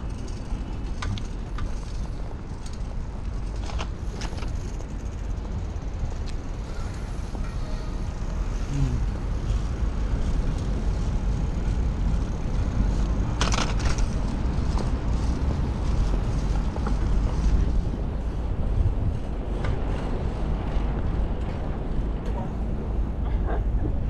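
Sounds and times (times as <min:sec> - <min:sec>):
bicycle rolling noise: 0:00.0 - 0:24.0
wind buffeting microphone: 0:08.0 - 0:24.0.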